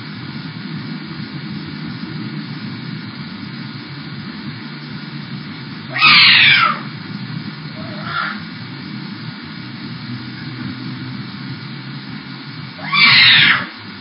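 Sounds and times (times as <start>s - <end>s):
microphone hiss: 0.0s - 14.0s
cat meowing: 5.9s - 6.9s, 12.8s - 13.7s.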